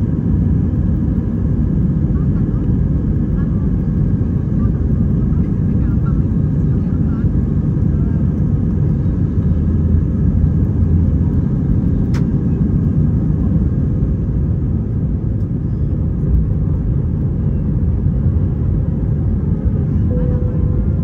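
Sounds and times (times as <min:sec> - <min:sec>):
airplane cabin rumble: 0:00.0 - 0:21.0
sharp click: 0:12.1 - 0:12.3.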